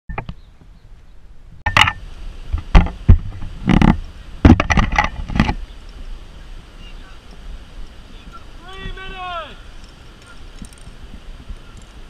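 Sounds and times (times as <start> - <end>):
wind rumble on microphone: 0.1 - 12.0
camera handling knocks and rubbing: 2.6 - 5.6.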